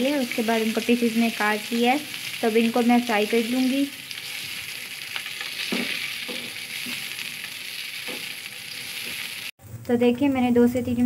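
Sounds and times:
potatoes sizzling in oil: 0.0s - 9.6s
spatula scraping and knocking pan: 4.2s - 9.3s.

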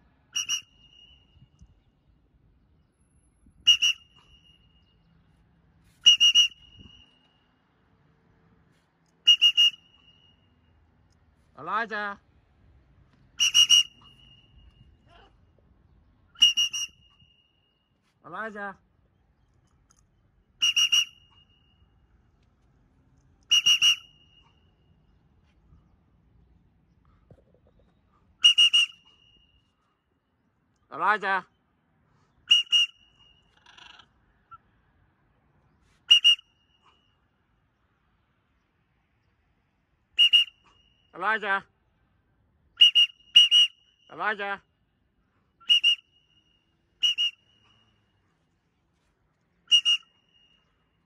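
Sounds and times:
high-pitched recall whistle: 0.4s - 1.6s, 3.6s - 5.0s, 5.9s - 7.4s, 9.2s - 10.6s, 13.4s - 15.0s, 16.4s - 17.6s, 20.6s - 22.0s, 23.5s - 24.8s, 28.4s - 29.7s, 32.5s - 33.5s, 36.0s - 37.0s, 40.2s - 41.0s, 42.8s - 44.1s, 45.6s - 48.1s, 49.6s - 50.9s.

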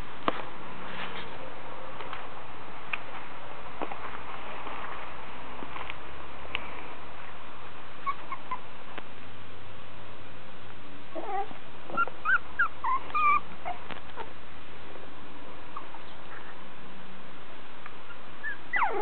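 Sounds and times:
background noise: 0.0s - 19.0s
puppies whimpering and yipping: 8.0s - 8.7s, 11.2s - 14.0s, 18.1s - 19.0s.

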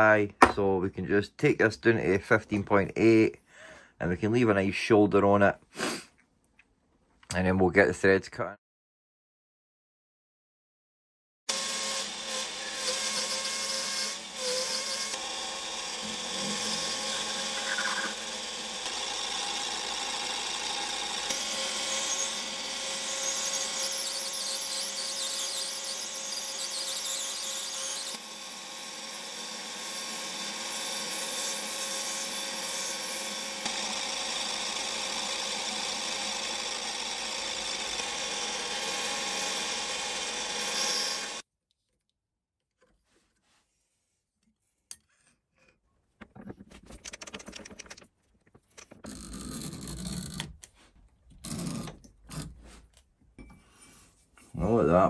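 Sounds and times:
cutting tool hissing on metal: 14.2s - 25.0s
metal lathe running: 15.1s - 23.0s, 33.0s - 41.4s.

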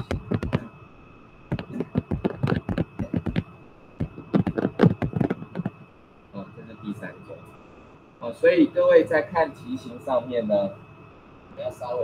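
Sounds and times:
stylus tapping on tablet screen: 0.0s - 0.7s, 1.5s - 5.8s.

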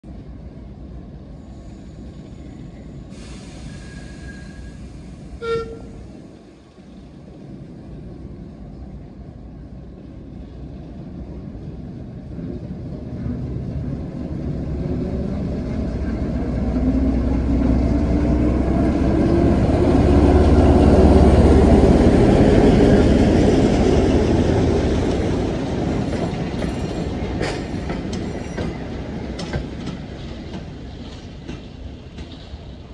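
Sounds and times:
diesel locomotive engines running: 1.2s - 32.9s
diesel locomotive horn toot: 5.4s - 6.1s.

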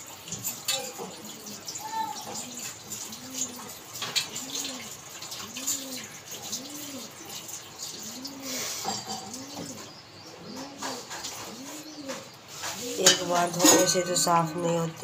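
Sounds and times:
water running in a sink: 0.0s - 9.8s
pigeon cooing: 0.7s - 15.0s.

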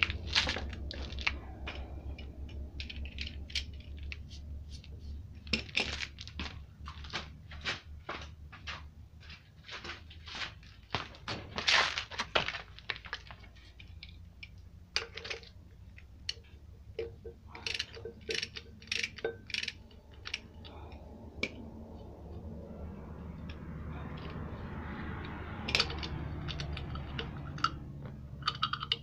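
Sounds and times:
metal hand tools clinking: 15.0s - 20.9s.

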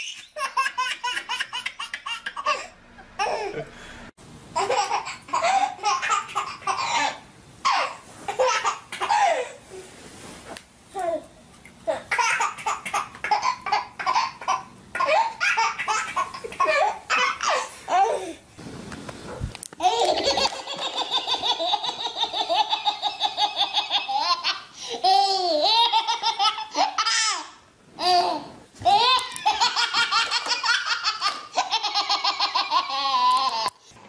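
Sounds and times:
babies laughing: 4.6s - 9.5s, 11.9s - 18.3s, 19.8s - 28.2s, 28.8s - 33.8s.

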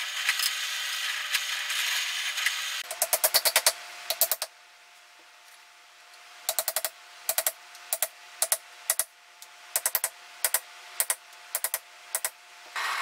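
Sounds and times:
hammer tapping metal: 2.8s - 4.5s, 6.5s - 9.1s, 9.8s - 12.3s.

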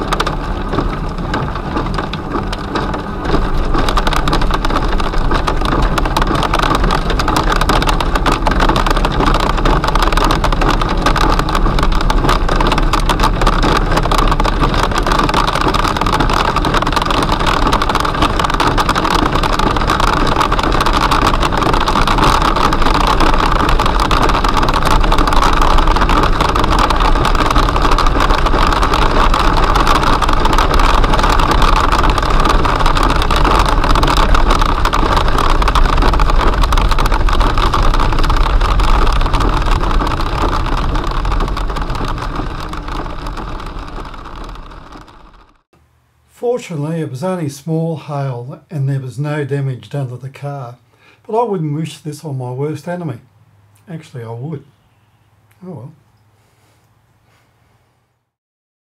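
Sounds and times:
hail and rain drumming on car roof: 0.0s - 45.6s
tyre and road noise: 0.0s - 45.7s.

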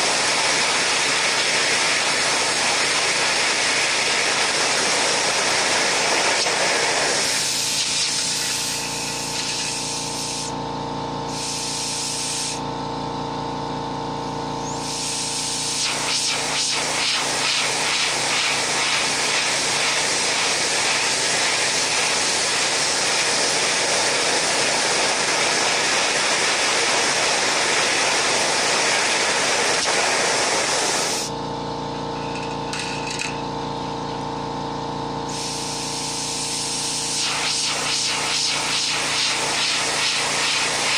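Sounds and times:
air blower hissing: 0.0s - 31.9s, 34.0s - 40.9s
steady hum: 0.0s - 40.9s.

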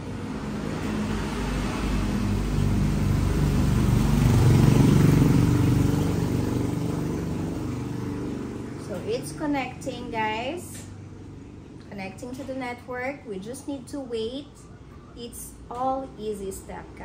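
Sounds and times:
vehicle engine passing by: 0.0s - 10.1s.

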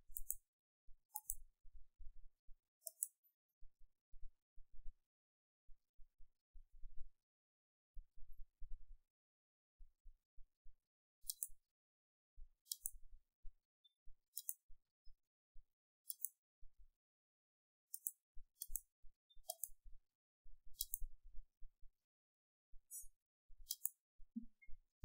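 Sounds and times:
computer mouse button clicking: 0.1s - 0.4s, 1.1s - 1.4s, 2.8s - 3.2s, 11.2s - 11.5s, 12.7s - 13.0s, 17.9s - 19.8s, 20.7s - 21.1s, 23.7s - 24.0s.

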